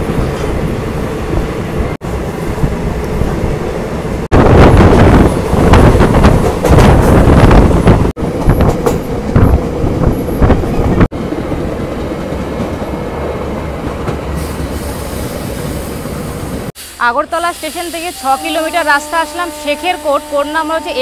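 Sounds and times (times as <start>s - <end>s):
train rumble: 0.0s - 21.0s
train coach rattling: 4.4s - 16.7s.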